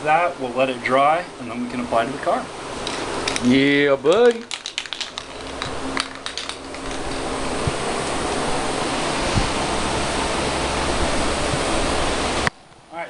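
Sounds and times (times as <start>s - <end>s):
spray paint can hissing: 3.0s - 7.8s.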